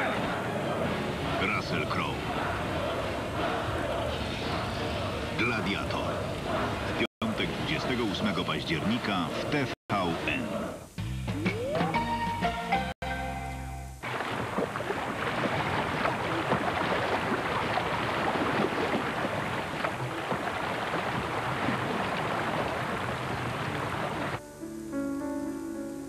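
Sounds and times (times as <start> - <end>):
kayak paddles splashing: 14.0 - 24.4
river water rushing and splashing: 14.0 - 24.4.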